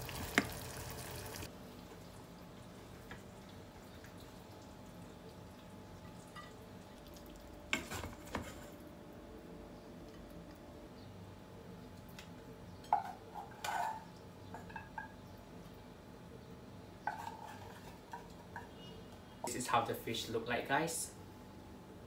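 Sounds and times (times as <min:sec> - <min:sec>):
fish sizzling in a pan: 0:00.0 - 0:01.5
faint kitchen hum: 0:00.0 - 0:22.0.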